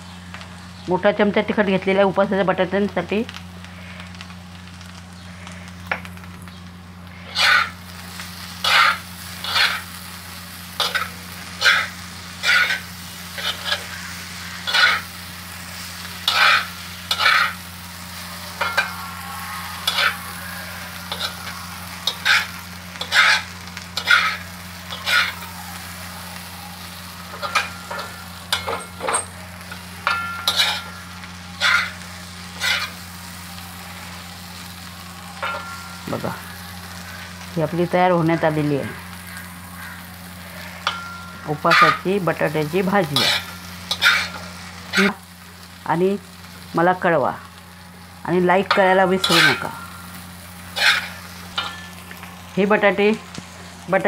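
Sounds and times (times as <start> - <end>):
faint sizzling of frying: 0.0 - 54.0
metal spoon scraping on iron pan: 7.2 - 7.8, 8.6 - 10.0, 10.8 - 15.2, 16.2 - 17.6, 18.5 - 19.0, 19.8 - 25.4, 27.3 - 32.0, 32.6 - 33.0, 35.4 - 36.1, 40.5 - 45.2, 48.7 - 52.0.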